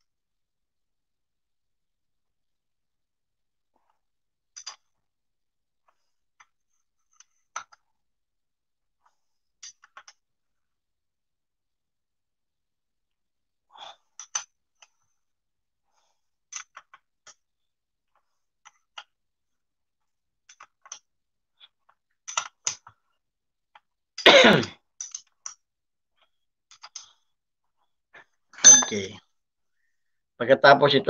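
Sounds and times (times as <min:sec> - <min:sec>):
person coughing: 0:24.2 - 0:24.8.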